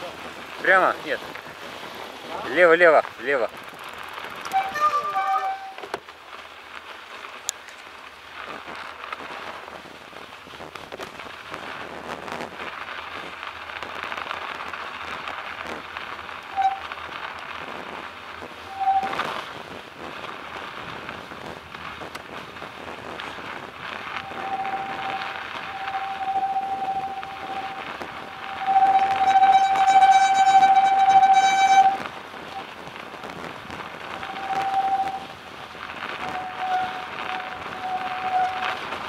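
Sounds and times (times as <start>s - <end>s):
bicycle tyres crunching on snow: 0.0s - 39.0s
short high squeak: 4.5s - 5.8s, 18.8s - 19.2s, 24.3s - 32.0s, 34.2s - 35.3s, 36.2s - 38.8s.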